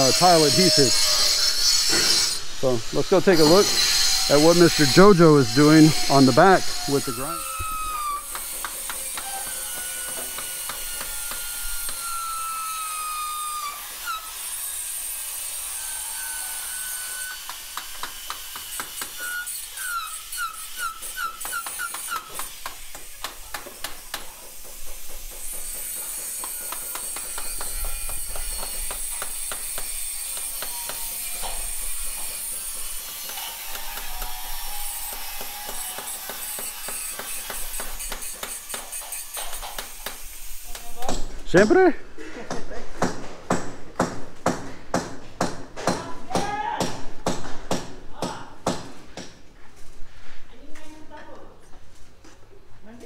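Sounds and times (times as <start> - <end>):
angle grinder cutting stone: 0.0 - 40.8.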